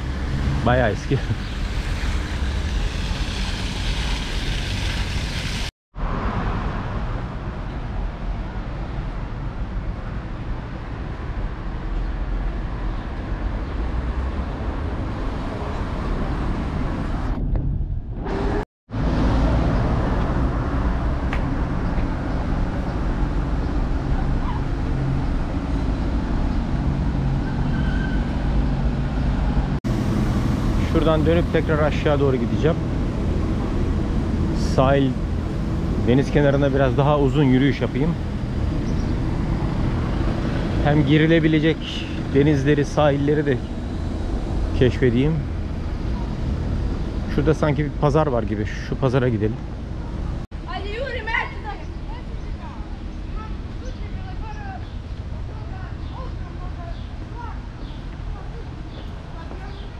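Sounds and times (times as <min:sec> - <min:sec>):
traffic rumble: 0:00.0 - 0:59.9
wind on microphone: 0:14.7 - 0:18.6.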